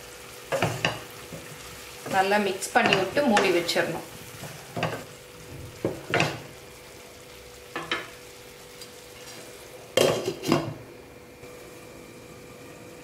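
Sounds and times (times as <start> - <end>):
frying sizzle: 0.0 - 13.0
spatula scraping frying pan: 0.5 - 5.2.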